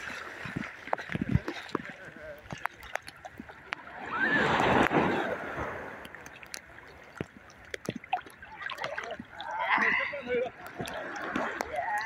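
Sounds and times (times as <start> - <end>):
sea wave rushing up sand: 3.9 - 6.0.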